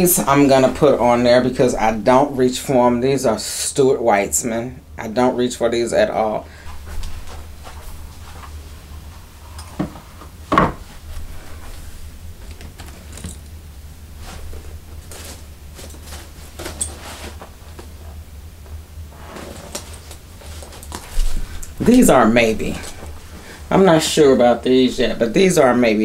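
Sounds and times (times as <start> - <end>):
steady low hum: 0.0 - 26.0
shoes knocking on shelf: 9.8 - 10.9.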